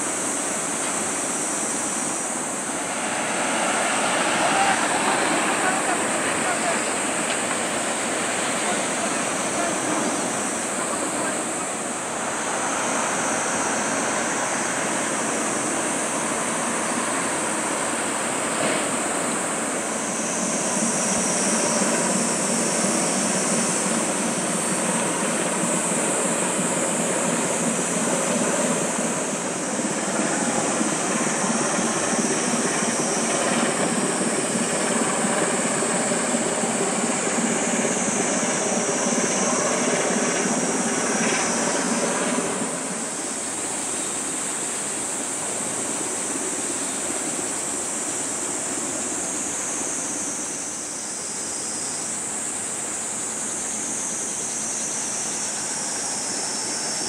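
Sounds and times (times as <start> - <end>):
ship diesel engine drone: 0.0 - 57.0
rush of water from bow wave: 1.0 - 20.5.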